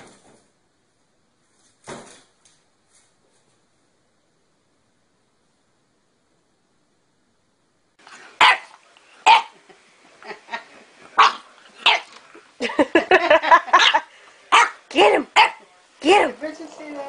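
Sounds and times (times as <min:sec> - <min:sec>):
puppy barking: 0:08.4 - 0:09.6, 0:11.2 - 0:12.2, 0:13.7 - 0:14.8, 0:15.4 - 0:15.6.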